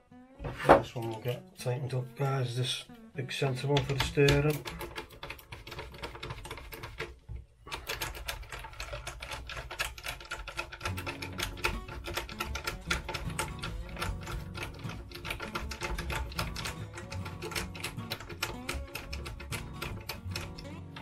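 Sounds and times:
screwdriver clicking: 0:03.8 - 0:07.1, 0:07.7 - 0:21.0.

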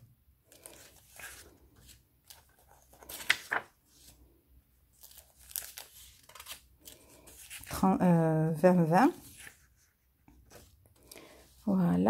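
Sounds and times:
paper rustling: 0:00.5 - 0:04.2, 0:05.0 - 0:07.8, 0:08.8 - 0:11.6.

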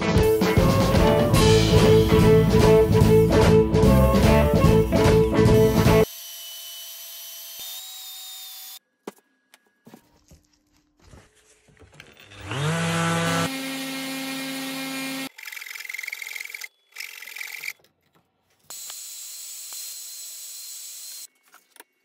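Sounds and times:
belt sander motor running: 0:12.2 - 0:17.7.

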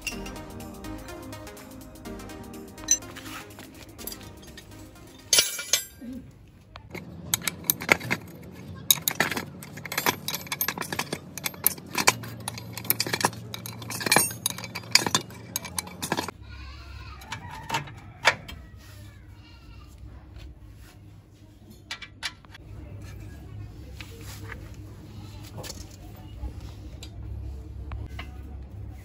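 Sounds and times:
metal tools clinking: 0:00.0 - 0:01.6, 0:02.8 - 0:06.2, 0:06.9 - 0:16.3
wrench working a bolt: 0:06.9 - 0:16.3.

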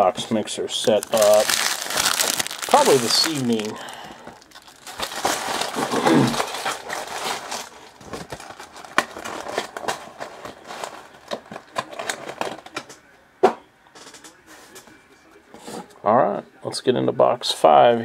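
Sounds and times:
foil wrappers crinkling and tearing: 0:00.7 - 0:12.8
cards rustling and clicking: 0:00.9 - 0:13.0.

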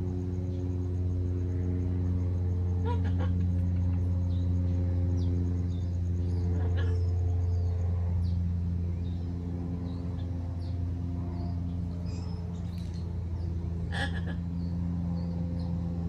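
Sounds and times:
low machine hum: 0:00.0 - 0:16.0
parrot calls: 0:02.8 - 0:03.4, 0:06.5 - 0:07.1, 0:13.9 - 0:14.5.

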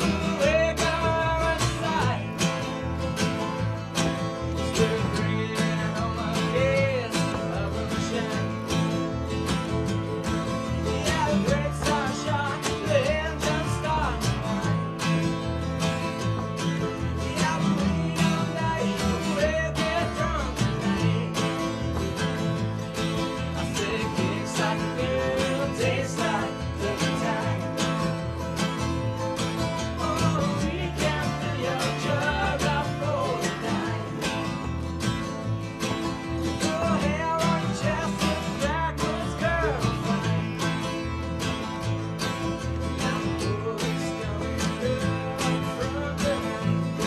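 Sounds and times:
country bluegrass band playing: 0:00.0 - 0:47.0.

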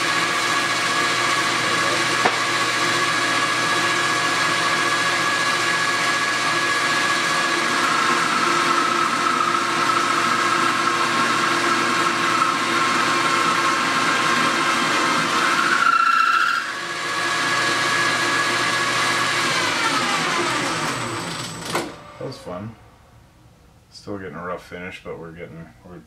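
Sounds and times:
lathe tool cutting whine: 0:00.0 - 0:22.6
metal lathe gear whine: 0:15.4 - 0:16.8.

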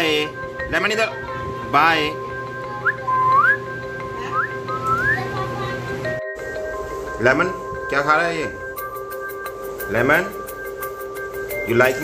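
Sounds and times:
steady held tones: 0:00.0 - 0:12.0
whistling rising notes: 0:02.8 - 0:05.3.

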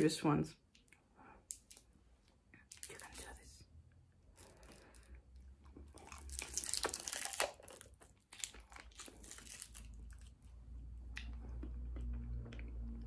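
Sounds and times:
person crunching hard candy: 0:04.3 - 0:10.4.

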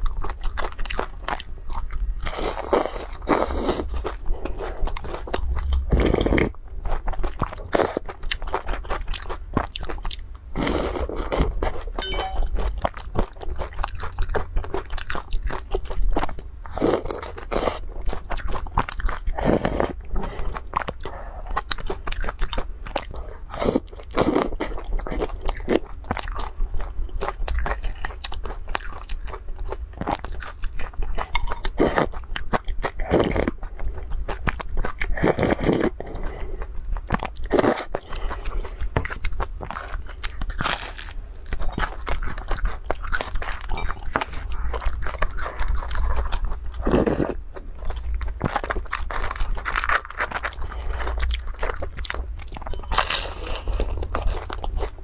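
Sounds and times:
wet chewing: 0:12.6 - 0:55.0.

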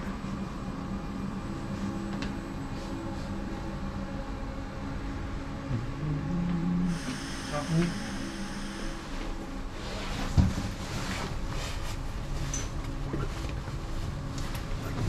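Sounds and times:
light-rail car interior hum: 0:00.0 - 0:10.4
low tone rising in pitch: 0:05.6 - 0:06.9.

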